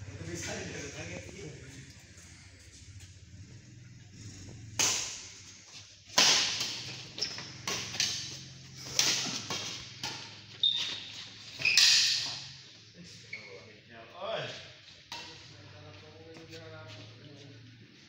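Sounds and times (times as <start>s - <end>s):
racket hitting shuttlecock: 4.7s - 5.4s, 6.1s - 10.5s
short high squeaks: 10.5s - 12.4s.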